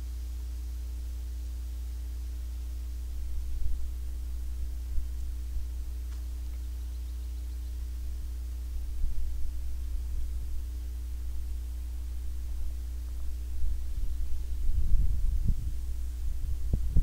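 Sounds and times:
low rumbles: 2.8s - 17.0s.

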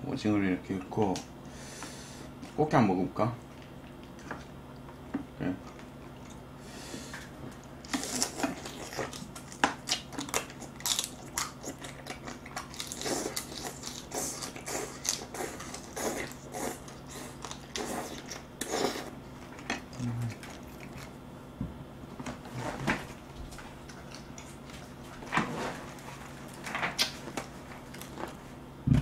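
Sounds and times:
crunching and chewing crab: 3.5s - 21.3s, 23.5s - 25.2s.

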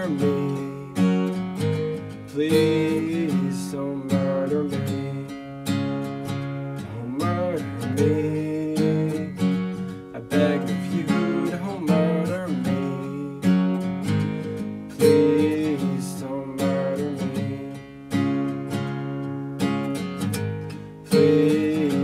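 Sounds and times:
acoustic guitar strumming chords: 0.0s - 22.0s.

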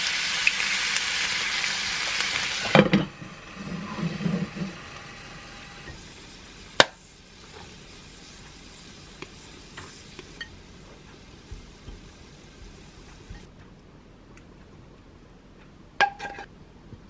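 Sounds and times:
egg sizzling in a pan: 0.0s - 13.5s.

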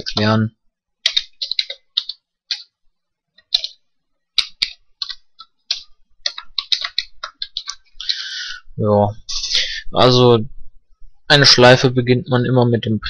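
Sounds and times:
keyboard keys clicking: 1.0s - 2.7s, 3.4s - 3.8s, 4.4s - 7.8s.

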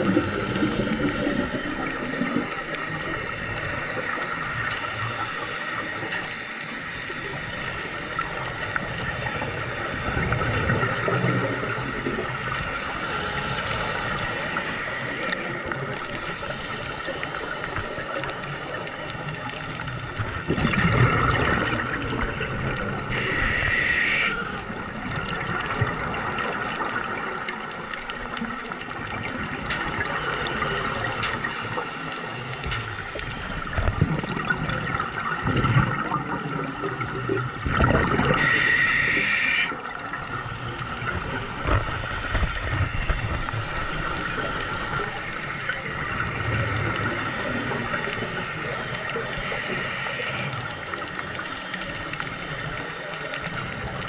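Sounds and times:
underwater hiss and rumble: 0.0s - 54.0s
regulator exhaust bubbles gurgling: 32.7s - 38.5s.

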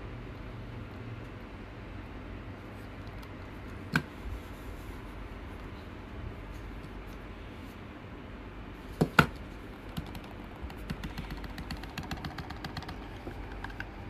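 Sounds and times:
steady low hum: 0.0s - 14.0s
mouse scroll wheel ticking: 9.9s - 14.0s.

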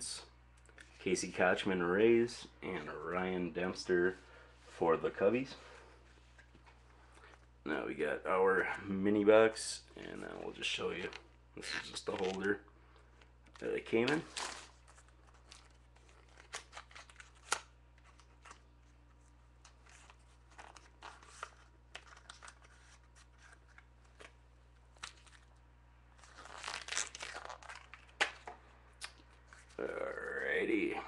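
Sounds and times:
paper tearing and crinkling: 14.0s - 18.6s, 26.2s - 28.4s.

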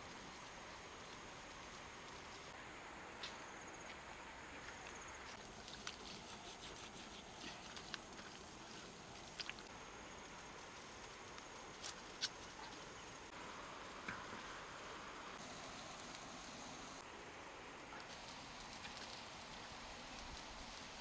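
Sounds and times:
steady low hiss: 0.0s - 21.0s
wood fire crackling: 0.0s - 21.0s.

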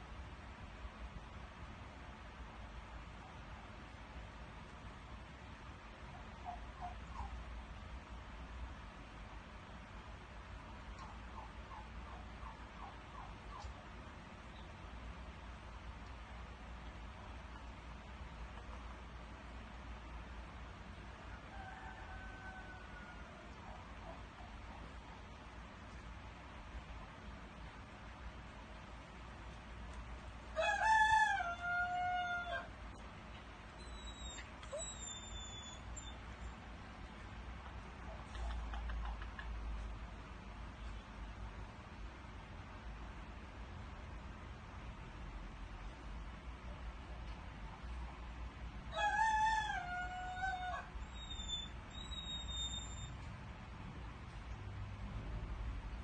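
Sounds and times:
dog crowing call: 30.5s - 32.7s, 48.9s - 51.8s
high whistle-like tones: 51.1s - 53.2s.

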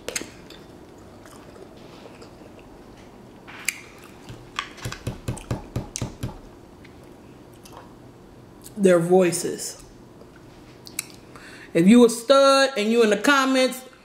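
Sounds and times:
person chewing with wet smacking: 0.0s - 7.9s, 10.2s - 11.2s.

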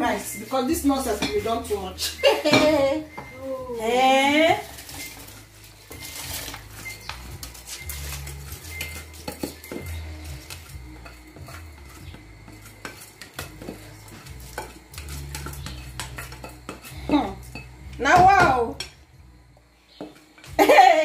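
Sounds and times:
spatula scraping glass bowl: 4.5s - 17.8s.

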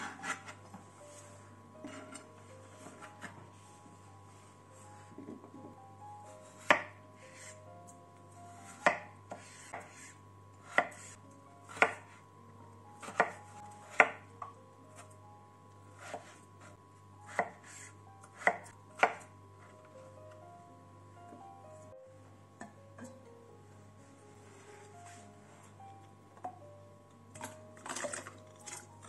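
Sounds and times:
knife chopping on plastic board: 10.7s - 11.1s, 11.7s - 12.0s, 13.0s - 14.2s.

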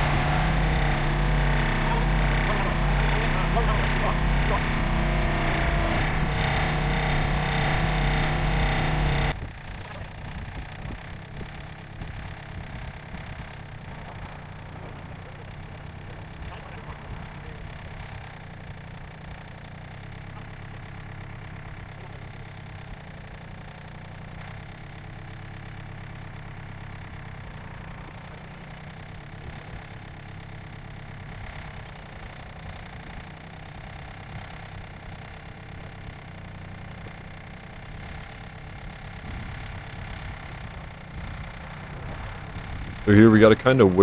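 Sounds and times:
tractor engine idling: 0.0s - 44.0s.

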